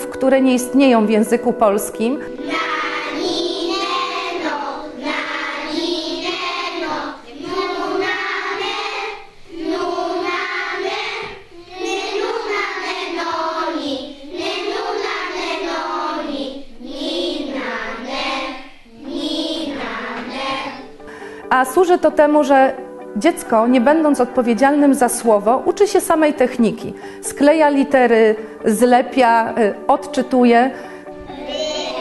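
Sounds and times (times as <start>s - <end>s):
children singing together: 2.2s - 21.2s, 31.1s - 32.0s.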